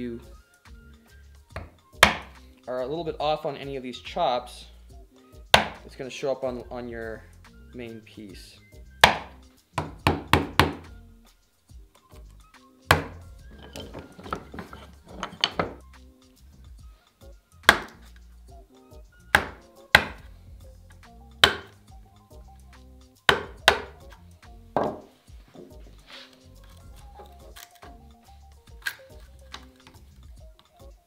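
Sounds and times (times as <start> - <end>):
background music: 0.0 - 31.0
chisel knocking into wood: 1.6 - 2.3, 5.6 - 5.8, 9.0 - 10.8, 12.9 - 15.8, 17.7 - 18.0, 19.4 - 20.2, 21.4 - 21.8, 23.3 - 24.0, 24.8 - 25.1.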